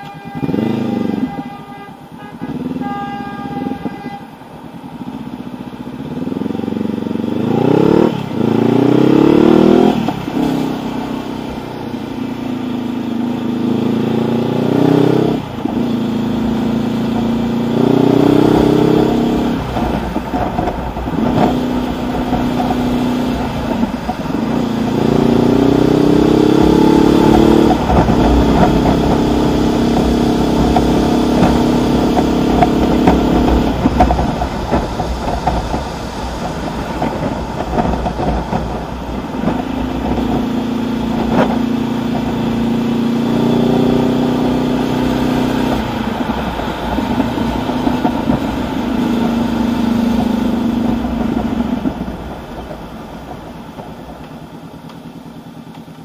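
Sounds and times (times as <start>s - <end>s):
motorcycle engine accelerating: 0.0s - 56.0s
traffic noise: 0.0s - 56.0s
wind noise: 15.0s - 54.4s.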